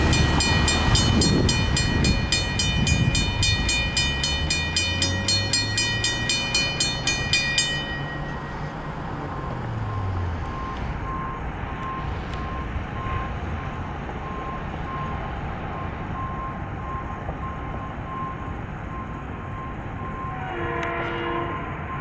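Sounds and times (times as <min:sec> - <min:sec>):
railroad crossing bell ringing: 0:00.0 - 0:12.0.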